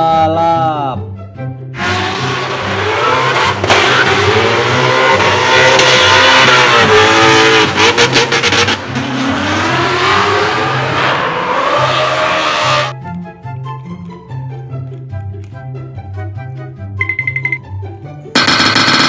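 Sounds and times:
drift car engines revving: 0:01.8 - 0:12.9
engine stuttering: 0:18.4 - 0:19.0.

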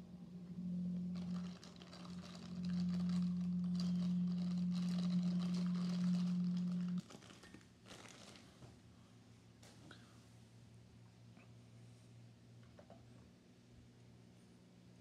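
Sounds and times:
turntable motor hum: 0:00.0 - 0:07.0
faint crackle: 0:00.3 - 0:08.8.

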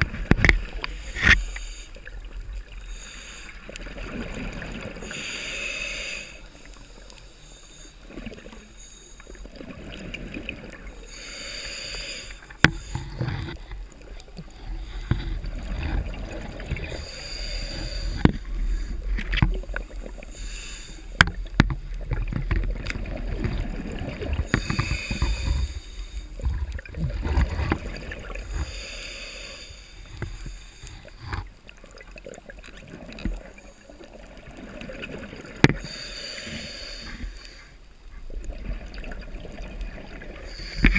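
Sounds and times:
diver breathing hiss: 0:00.6 - 0:02.1, 0:02.8 - 0:04.0, 0:04.8 - 0:09.5, 0:10.9 - 0:13.4, 0:16.2 - 0:19.2, 0:20.0 - 0:21.2, 0:24.4 - 0:26.6, 0:28.2 - 0:31.3, 0:35.8 - 0:37.8, 0:40.3 - 0:40.9
bubbling low rumbles: 0:25.3 - 0:28.4.

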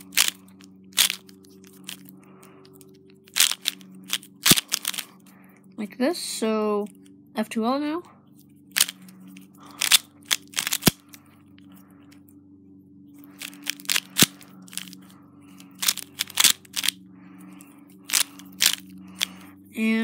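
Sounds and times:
puzzle cube plastic clicks: 0:00.0 - 0:02.1, 0:03.3 - 0:05.1, 0:08.7 - 0:11.2, 0:13.3 - 0:15.0, 0:15.7 - 0:17.0, 0:18.0 - 0:19.4
faint steady hum: 0:00.0 - 0:20.0.

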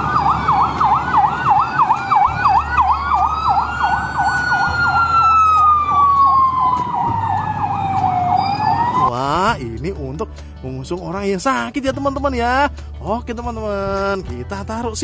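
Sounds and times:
siren in rapid yelp: 0:00.0 - 0:09.2
siren in slow wail: 0:00.0 - 0:09.2.

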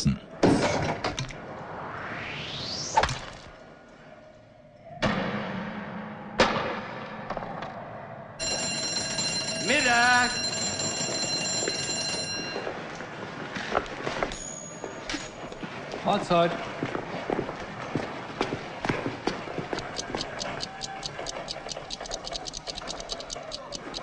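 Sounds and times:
rising whistle-like sweep: 0:01.3 - 0:05.1
bell ringing: 0:08.4 - 0:13.0, 0:14.2 - 0:15.6.

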